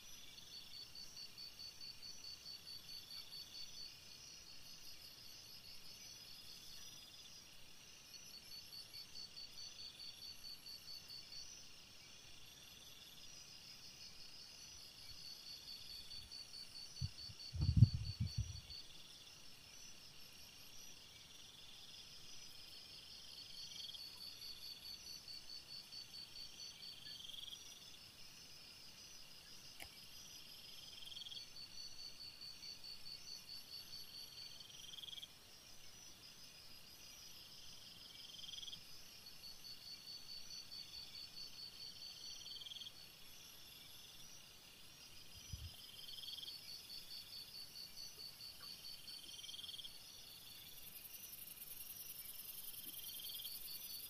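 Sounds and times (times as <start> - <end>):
crickets chirping: 0.0 - 54.0.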